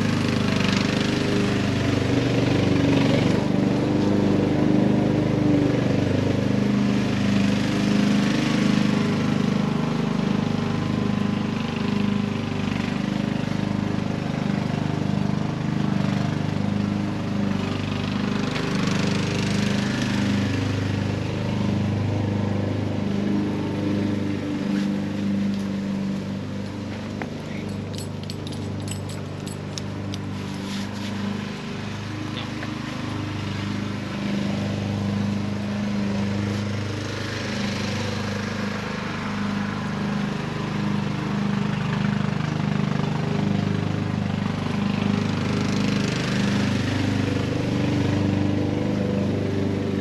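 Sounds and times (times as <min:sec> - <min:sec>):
small engine running: 0:00.0 - 0:50.0
tent fabric rustling: 0:30.3 - 0:31.4.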